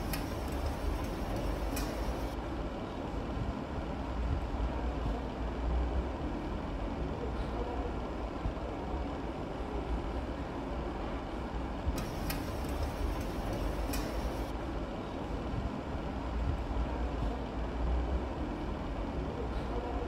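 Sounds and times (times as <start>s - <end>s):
sharp clicks: 0.0s - 2.4s, 12.0s - 14.5s
low machinery rumble: 0.0s - 20.0s.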